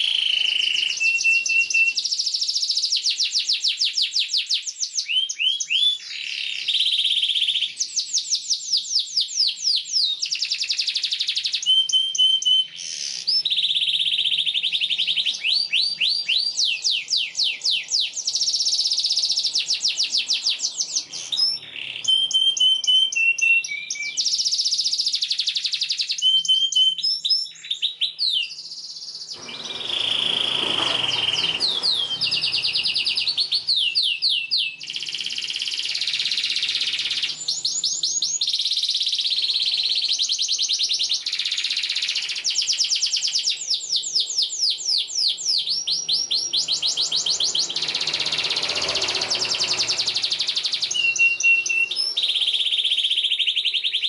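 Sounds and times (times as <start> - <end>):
canary singing trills: 0.0 - 54.0.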